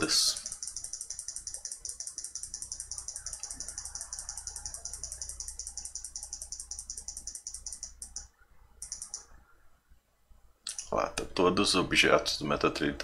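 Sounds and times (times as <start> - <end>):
rapid computer mouse clicking: 0.0 - 9.4.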